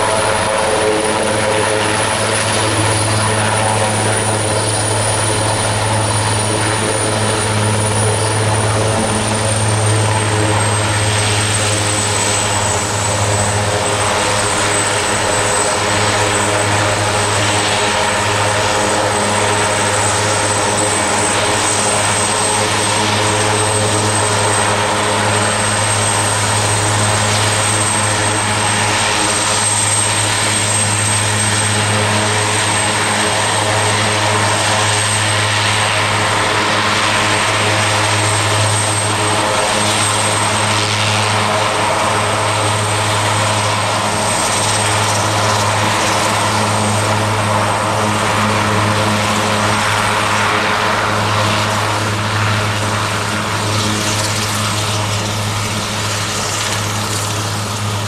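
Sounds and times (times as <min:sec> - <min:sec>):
helicopter rotor drone: 0:00.0 - 0:58.0
turbine whine: 0:00.0 - 0:58.0.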